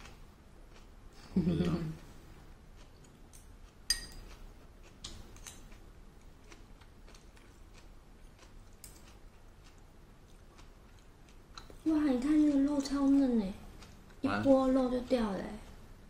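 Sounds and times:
chopsticks clinking on ceramic bowl: 3.3 - 4.4.

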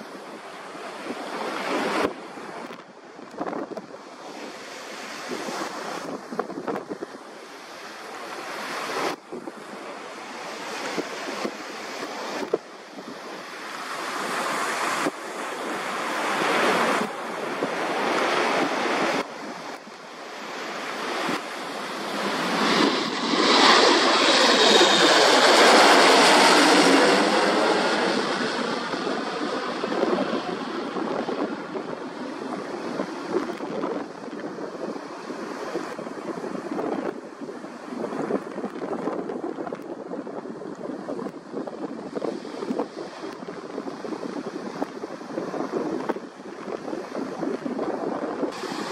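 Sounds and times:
jet engines rushing: 3.6 - 36.8, 48.5 - 48.9.

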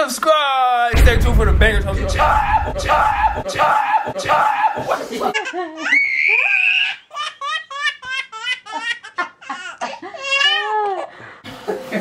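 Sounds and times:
baby laughing: 4.9 - 11.1.

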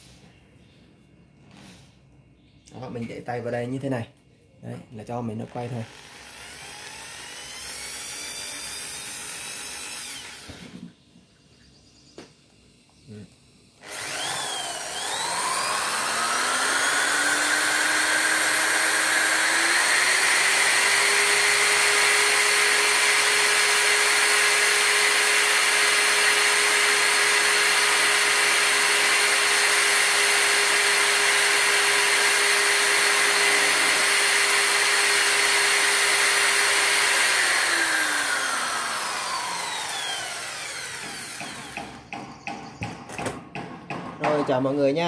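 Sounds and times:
electric drill motor whine: 5.4 - 11.0, 13.8 - 42.1.

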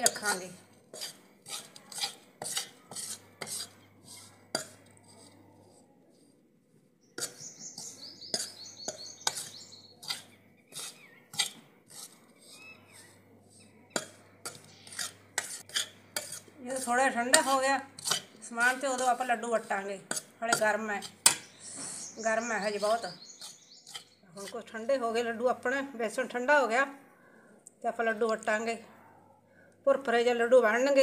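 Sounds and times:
steel spoon scraping metal pan: 0.0 - 5.8, 7.2 - 24.7.

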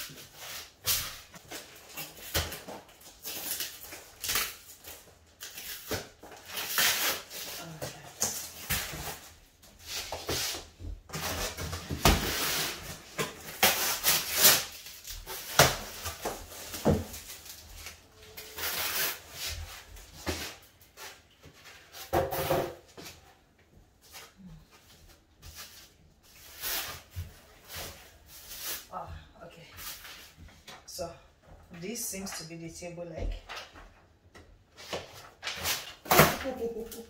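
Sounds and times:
plastic wrap crinkling: 0.0 - 9.5, 11.2 - 21.9.

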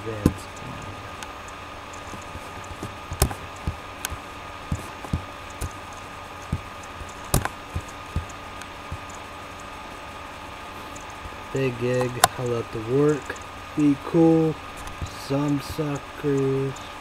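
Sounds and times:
steady background hum: 0.0 - 17.0
keyboard and mouse clicks: 1.9 - 9.2.

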